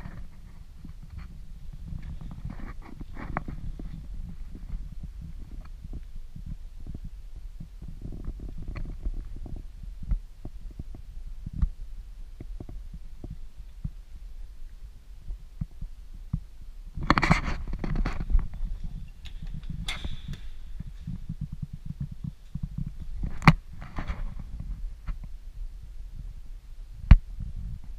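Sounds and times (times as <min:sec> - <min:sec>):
low rumble: 0:00.0 - 0:27.9.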